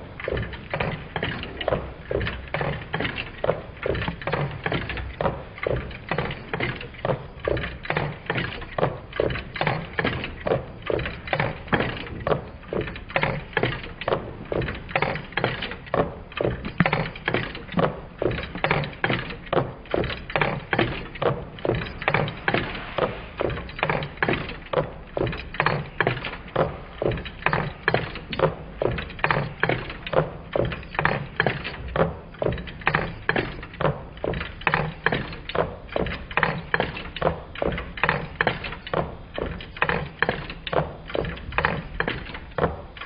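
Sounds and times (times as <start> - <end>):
stirling engine clicking rhythmically: 0.0 - 43.0.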